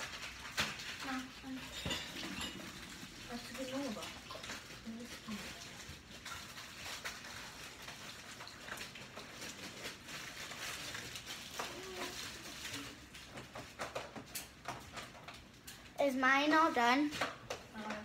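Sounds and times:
items knocking and clicking on shelves: 13.2s - 15.5s, 17.0s - 18.0s.

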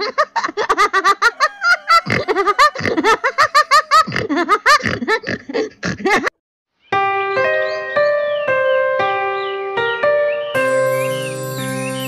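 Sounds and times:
hearty laughter: 0.0s - 6.4s.

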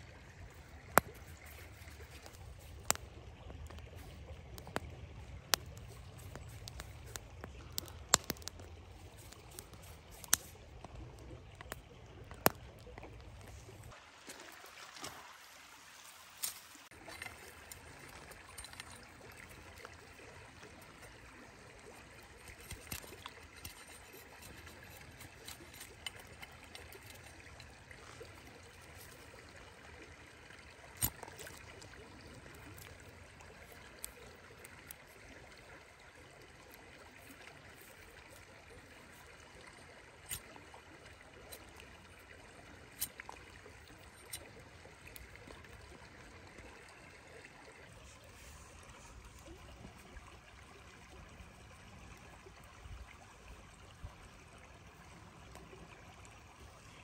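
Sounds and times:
river flowing: 0.0s - 57.0s
knife whittling twig: 22.3s - 27.7s.

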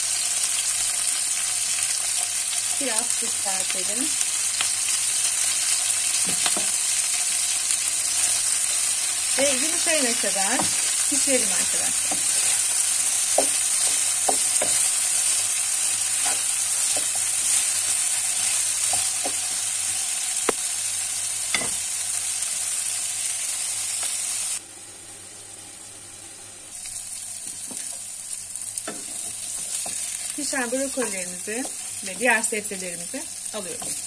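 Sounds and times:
vegetables sizzling in oil: 0.0s - 34.0s
wooden spoon scraping a pan: 10.1s - 19.6s.

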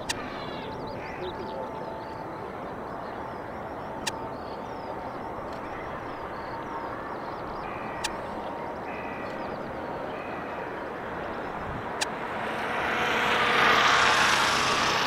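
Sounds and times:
sharp clicks: 0.0s - 0.3s, 4.0s - 4.2s
birds calling: 0.0s - 12.2s
distant jet engine rumble: 0.0s - 15.0s.

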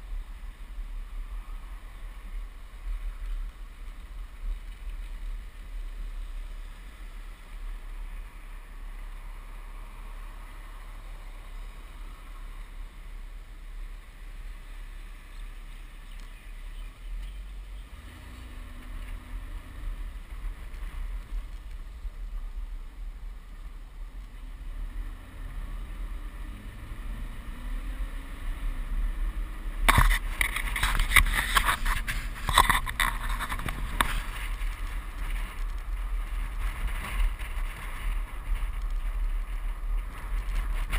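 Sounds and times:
car engine driving: 0.0s - 40.9s
wind buffeting microphone: 16.4s - 40.9s.

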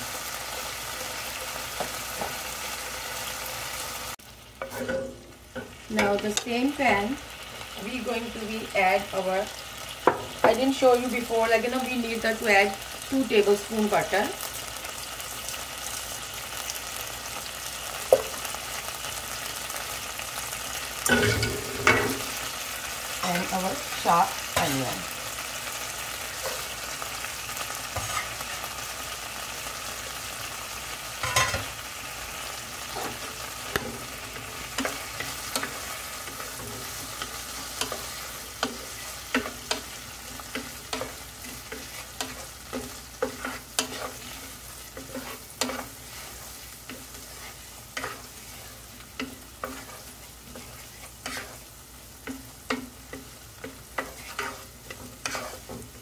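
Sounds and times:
onion sizzling in butter: 0.0s - 56.0s
wooden spatula scraping pan: 32.8s - 56.0s.

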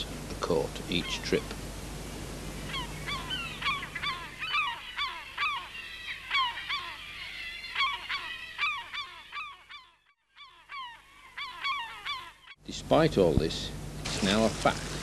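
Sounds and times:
flock of birds calling: 0.9s - 1.6s, 2.6s - 12.6s.

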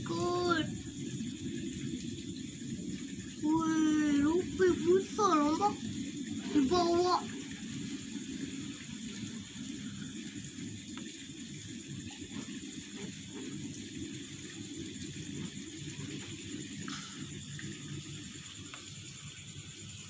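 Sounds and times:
low uneven rumble: 0.0s - 11.1s.

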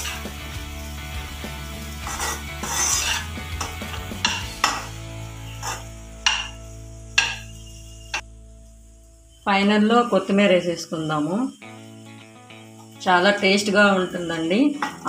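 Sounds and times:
spatula scraping rice in pan: 2.0s - 4.8s, 5.6s - 6.5s
utensil knocking against pan: 3.6s - 4.9s, 6.2s - 6.6s.

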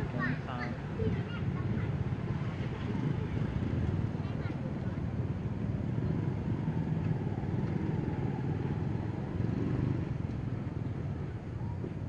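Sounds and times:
motorbike engines running: 0.0s - 12.0s
road traffic rumble: 0.0s - 12.0s.

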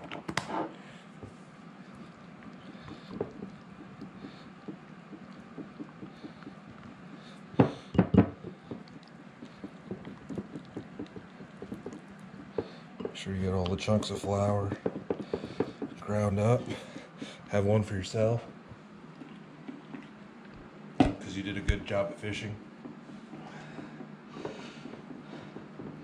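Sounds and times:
whisk knocking on bowl: 2.8s - 8.9s, 9.6s - 13.2s, 13.8s - 16.3s.

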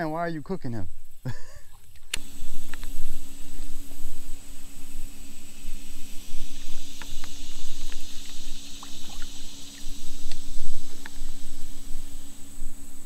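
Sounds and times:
high insect drone: 0.0s - 13.0s
low hum: 0.8s - 13.0s
fish splashing in water: 5.2s - 12.5s.

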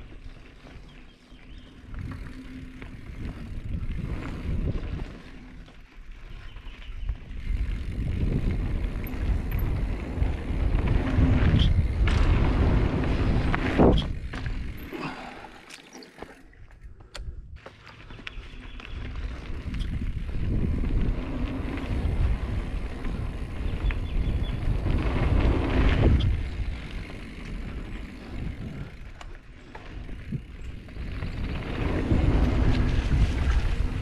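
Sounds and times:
bike tyres rumbling on dirt: 0.0s - 16.7s, 17.5s - 34.0s
bike rattling: 0.0s - 34.0s
wind on microphone: 1.8s - 5.3s, 7.0s - 14.8s, 18.9s - 29.1s, 30.0s - 34.0s.

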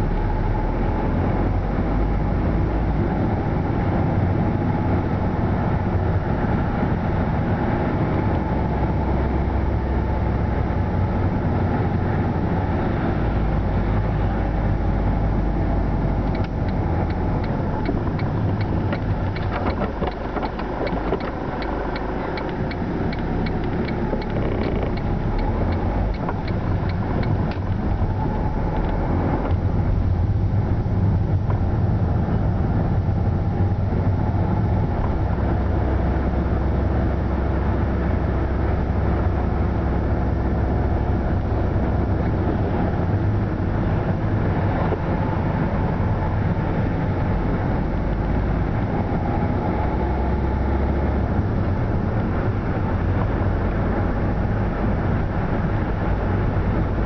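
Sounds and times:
car engine and tyre noise: 0.0s - 57.0s
turn indicator ticking: 16.0s - 29.7s.

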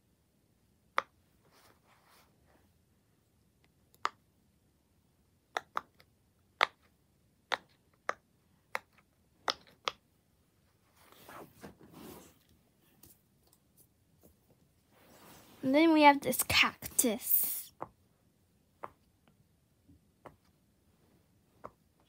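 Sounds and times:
soft rustle: 1.4s - 2.8s, 10.6s - 16.0s.

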